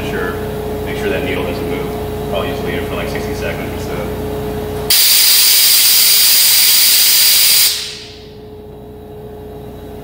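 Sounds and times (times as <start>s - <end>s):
vacuum tester hissing loudly: 4.9s - 8.2s.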